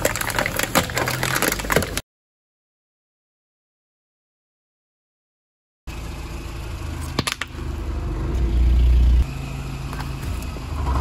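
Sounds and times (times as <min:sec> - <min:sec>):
car engine and tyres rumbling: 0:00.0 - 0:02.0, 0:05.9 - 0:11.0.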